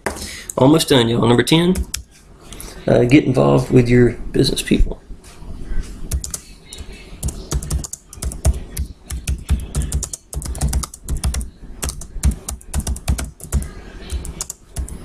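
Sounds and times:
computer keyboard typing: 0:01.7 - 0:02.1, 0:06.1 - 0:15.0.

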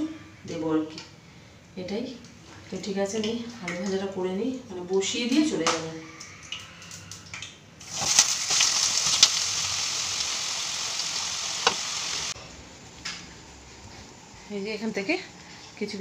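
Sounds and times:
potatoes sizzling in hot oil: 0:07.8 - 0:12.4.

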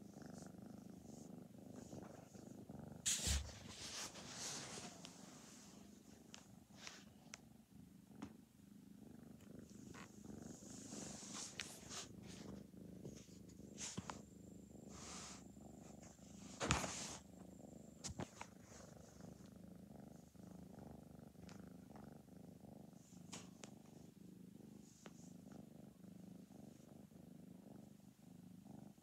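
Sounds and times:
kitten purring: 0:00.0 - 0:29.0.

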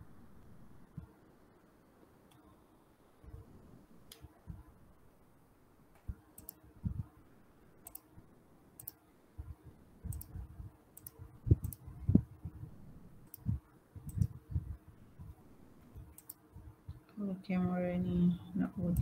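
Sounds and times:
computer mouse clicks: 0:06.0 - 0:06.6, 0:07.8 - 0:08.1, 0:08.8 - 0:09.0, 0:10.1 - 0:10.4, 0:11.0 - 0:11.9, 0:13.2 - 0:14.4, 0:16.0 - 0:16.4.

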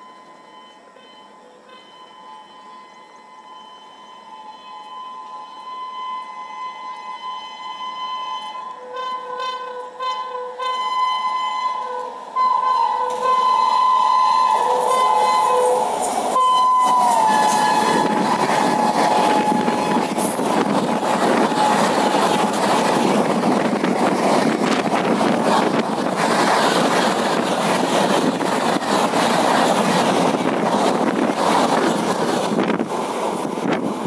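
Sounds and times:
shrill locomotive horn: 0:00.0 - 0:23.2
train coaches rushing on rails: 0:00.0 - 0:34.0.

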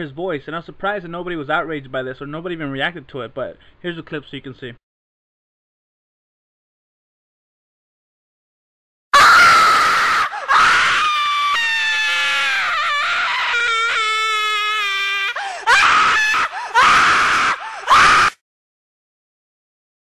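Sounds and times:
shrill scream: 0:09.1 - 0:18.4.

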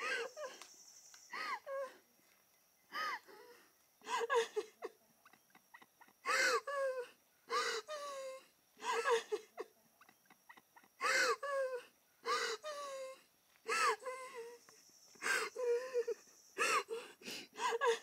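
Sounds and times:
person sobbing: 0:01.4 - 0:02.0, 0:02.9 - 0:05.0, 0:05.6 - 0:09.7, 0:10.3 - 0:14.6, 0:15.2 - 0:18.0.

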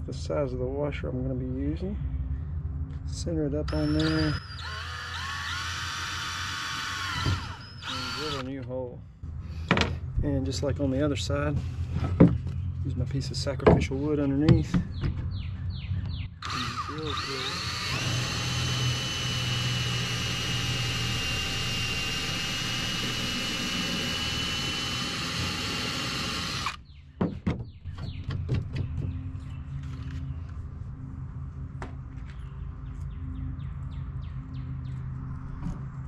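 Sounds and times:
cordless drill whining: 0:03.7 - 0:08.5, 0:16.4 - 0:26.8.

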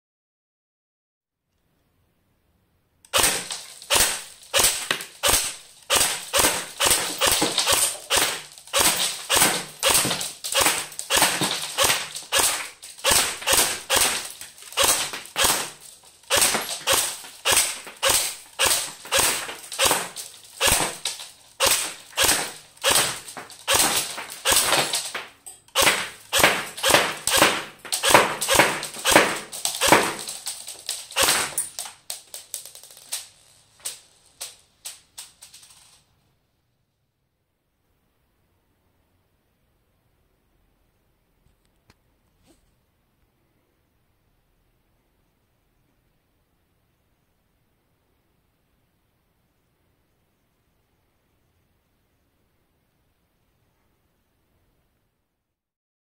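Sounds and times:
airsoft rifle shots cracking: 0:03.1 - 0:31.9
pellets punching paper: 0:03.1 - 0:33.2
pellets striking ceramic: 0:03.1 - 0:33.5.

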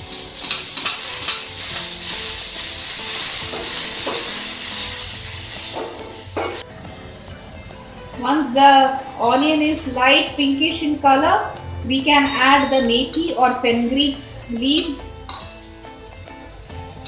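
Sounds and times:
onion sizzling in hot oil: 0:00.0 - 0:17.0
metal spatula scraping: 0:14.7 - 0:15.6.

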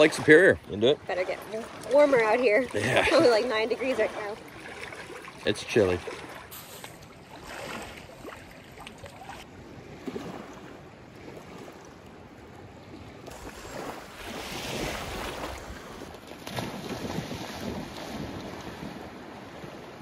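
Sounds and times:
waves lapping on shore: 0:00.0 - 0:20.0
wind buffeting microphone: 0:12.5 - 0:20.0.

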